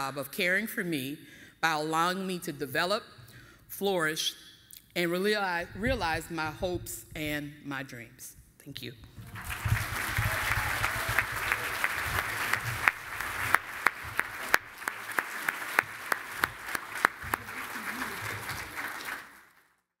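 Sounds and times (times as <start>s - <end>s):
audience clapping: 9.1s - 19.8s.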